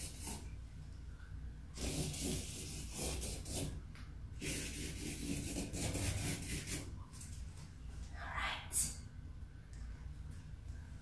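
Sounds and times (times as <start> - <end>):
marker scratching on paper: 1.8 - 3.8, 4.4 - 6.9.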